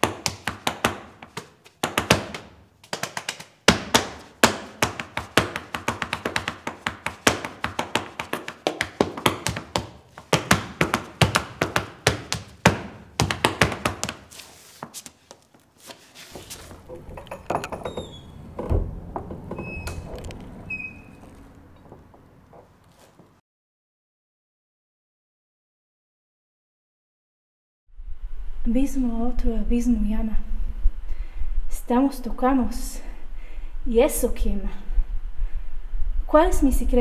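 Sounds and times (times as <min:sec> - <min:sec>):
low rumble: 0:18.3 - 0:20.8.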